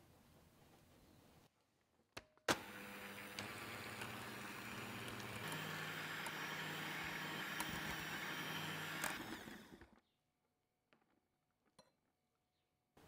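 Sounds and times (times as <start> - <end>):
electric hand mixer running: 2.5 - 10.0.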